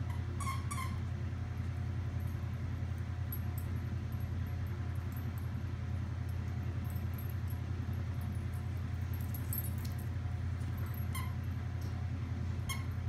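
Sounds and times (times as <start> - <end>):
steady low hum: 0.0 - 13.0
squeaky dog toy squeaking: 0.1 - 1.0, 12.7 - 12.9.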